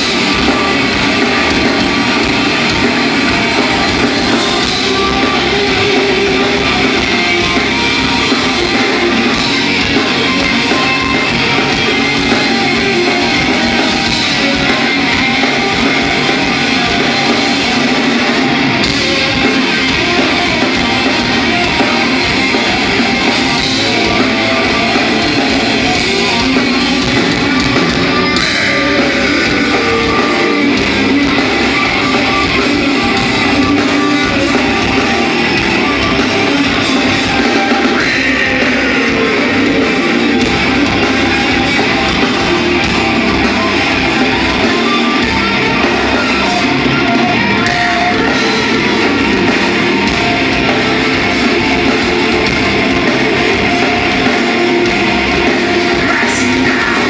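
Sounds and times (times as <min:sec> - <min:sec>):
rock band playing live: 0:00.0 - 0:57.0.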